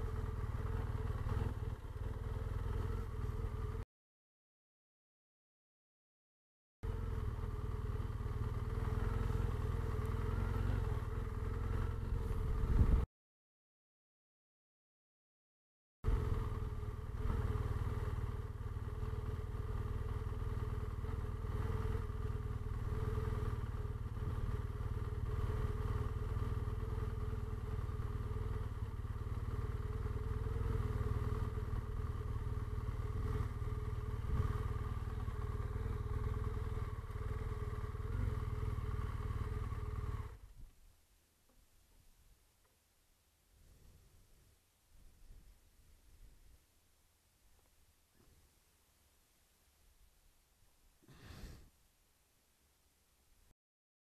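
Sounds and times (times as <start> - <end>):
motorcycle engine running: 0.0 - 3.8, 6.8 - 13.1, 16.0 - 40.6.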